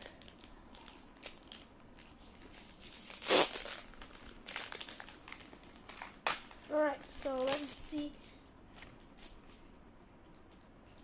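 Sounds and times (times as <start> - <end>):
foil wrapper crinkling and tearing: 0.0 - 7.8.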